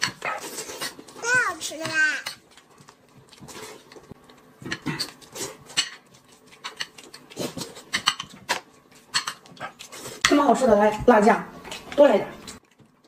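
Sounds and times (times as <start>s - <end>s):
wet chewing and lip-smacking: 2.3s - 10.2s, 11.7s - 13.0s.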